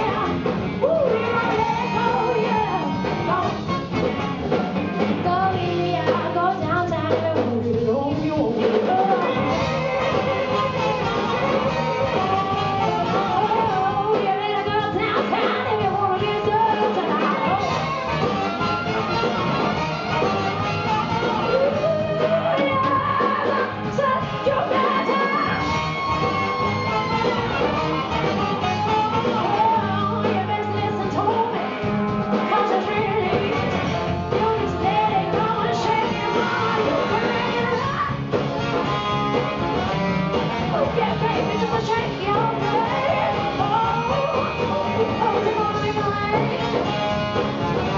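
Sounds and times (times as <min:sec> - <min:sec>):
live band with horn section: 0:00.0 - 0:47.9
lead melody bending in pitch: 0:09.2 - 0:14.1, 0:17.2 - 0:22.9, 0:25.4 - 0:30.3.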